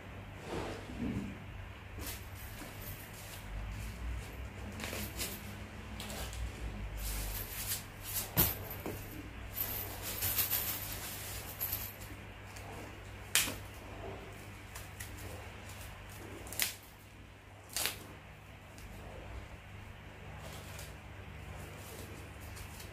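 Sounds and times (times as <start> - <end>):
paper crinkling and rustling: 20.4 - 22.9.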